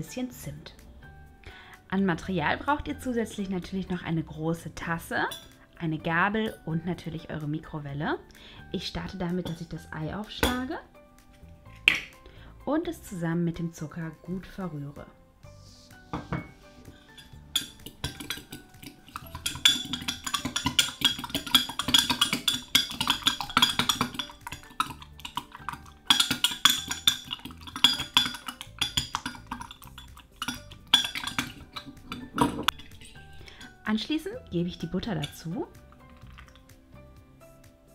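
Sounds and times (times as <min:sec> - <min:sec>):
background music: 0:00.0 - 0:37.9
fork clinking against glass: 0:16.4 - 0:33.8.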